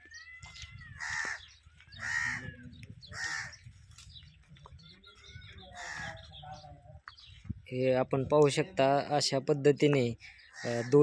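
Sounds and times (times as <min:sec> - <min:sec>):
bird calling: 0:00.0 - 0:07.4, 0:10.2 - 0:11.0.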